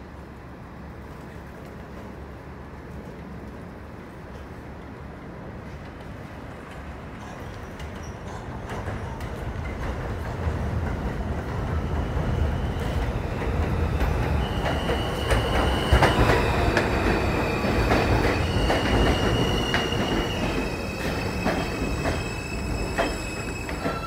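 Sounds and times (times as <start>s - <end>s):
train wheels rumbling over rail joints: 5.7s - 24.0s
high wheel squeals: 17.2s - 24.0s.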